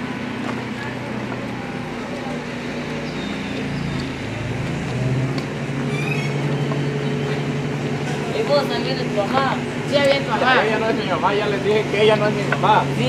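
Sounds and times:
motor vehicle engine running: 0.0s - 13.0s
high chirp: 2.9s - 4.2s.

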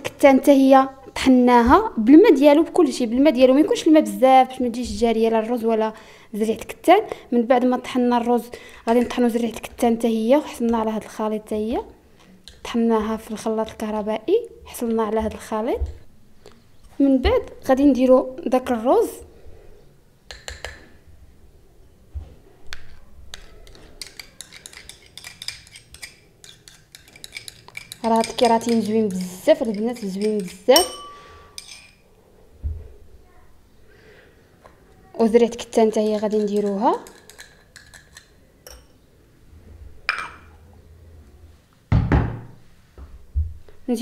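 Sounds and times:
gel being scraped: 23.3s - 30.8s
metal spoon clinking on ceramic bowls: 23.3s - 32.0s, 35.7s - 39.0s, 40.1s - 40.5s
dull knock: 41.9s - 42.5s
loud thump: 41.9s - 42.5s.

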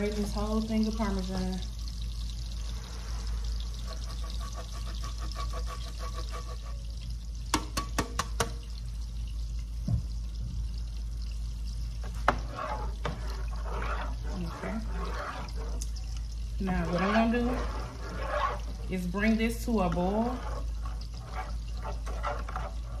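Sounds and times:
cheese grating strokes: 3.9s - 6.8s, 12.3s - 15.8s, 16.6s - 18.9s.

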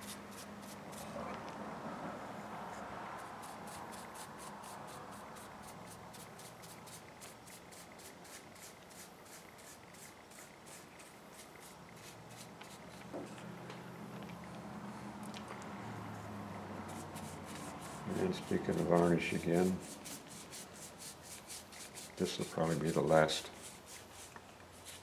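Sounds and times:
brush strokes on wood: 16.0s - 25.0s.

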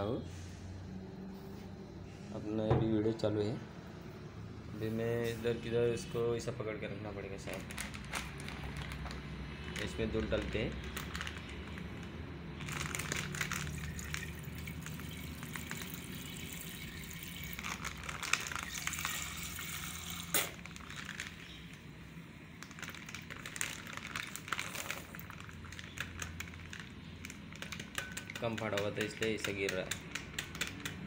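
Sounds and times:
milk trickling into a steel pot: 9.8s - 21.8s.

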